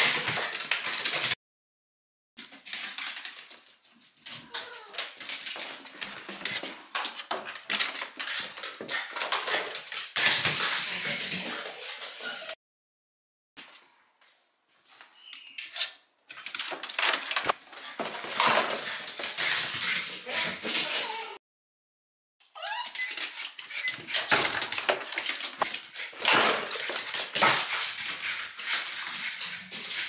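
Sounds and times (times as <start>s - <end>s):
dog paws clicking on wooden floor: 0.0s - 1.4s, 2.4s - 12.5s, 16.3s - 21.3s, 22.6s - 30.0s
dog whining squeaks: 22.5s - 24.0s.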